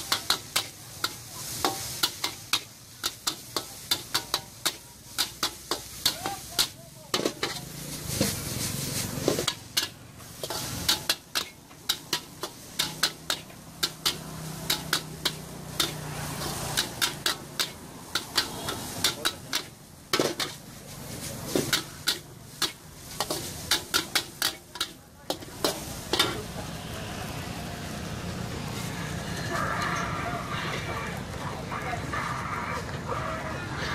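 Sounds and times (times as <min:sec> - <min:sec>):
metal spatula scraping a wok: 0:00.0 - 0:26.9
food sizzling: 0:00.0 - 0:33.9.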